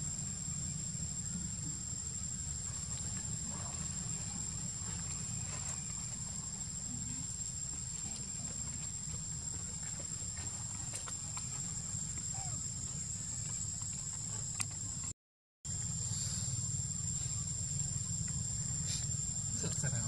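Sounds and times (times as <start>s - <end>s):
faint ticks and rustles: 2.7s - 15.1s.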